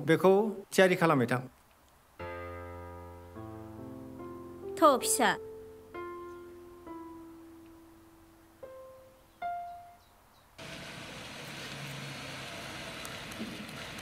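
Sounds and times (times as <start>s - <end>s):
steady outdoor hiss: 0.0s - 14.0s
soft piano notes: 2.2s - 10.4s
car approaching: 10.6s - 14.0s.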